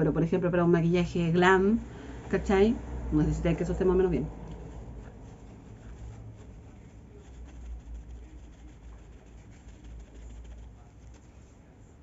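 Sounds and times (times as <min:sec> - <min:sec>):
low steady hum: 0:00.0 - 0:12.0
paper tissue rustling: 0:04.4 - 0:12.0.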